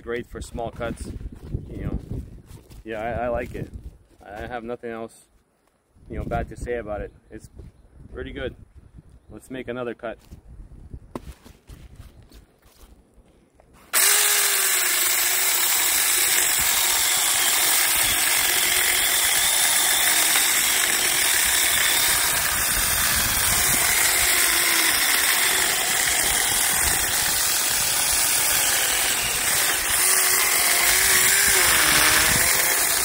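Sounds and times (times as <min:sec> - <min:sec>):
electric chainsaw cutting branch: 0:13.9 - 0:33.0.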